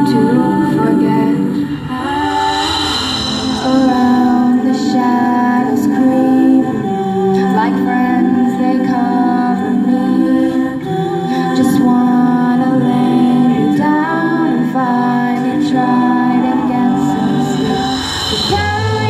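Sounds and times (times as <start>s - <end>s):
backing vocal harmonies: 0.0s - 19.0s
female lead singing: 0.0s - 19.0s.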